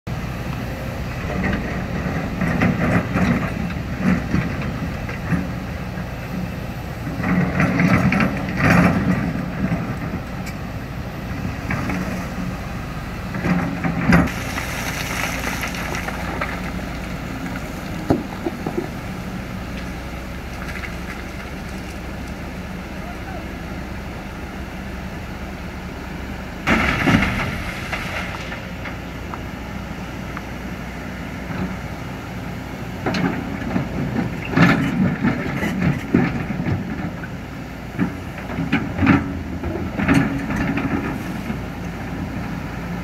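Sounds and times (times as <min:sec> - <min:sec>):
excavator engine running: 0:00.1 - 0:43.0
scraping and clanking: 0:34.1 - 0:36.9.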